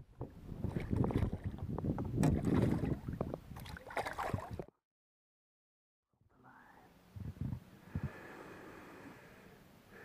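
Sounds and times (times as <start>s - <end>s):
wind buffeting microphone: 0.0s - 4.6s, 7.2s - 8.2s
water sloshing beside boat hull: 0.2s - 4.7s.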